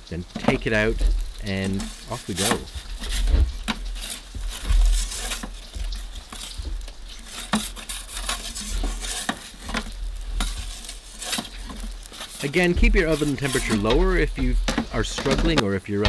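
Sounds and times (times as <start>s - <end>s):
low rumbles: 0.0s - 5.0s
fire crackling: 0.0s - 16.0s
metal peel scraping on stone: 0.4s - 15.5s.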